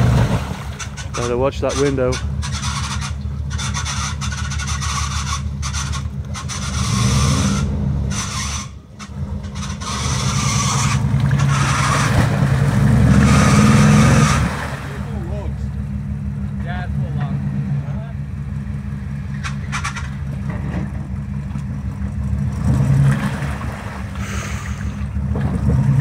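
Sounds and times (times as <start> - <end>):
tyres churning mud and water: 0.0 - 18.1, 19.3 - 26.0
truck engine revving: 0.0 - 26.0.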